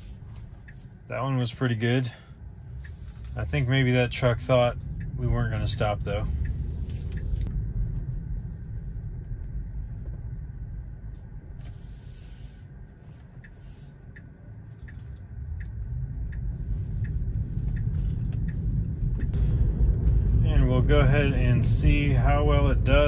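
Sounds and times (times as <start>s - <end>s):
road and tyre rumble: 0.0s - 23.0s
turn signal ticking: 0.0s - 23.0s
brief hiss: 11.6s - 12.7s.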